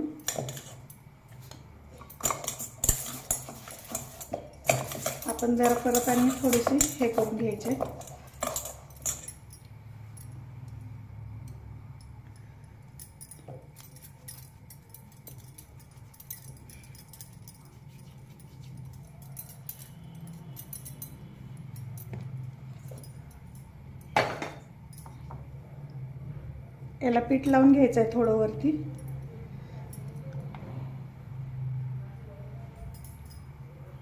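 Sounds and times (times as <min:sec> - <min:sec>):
bangles clinking: 0:00.0 - 0:25.6, 0:28.8 - 0:30.6, 0:32.8 - 0:33.7
steady low hum: 0:00.0 - 0:34.0
hands kneading dough: 0:17.4 - 0:19.3.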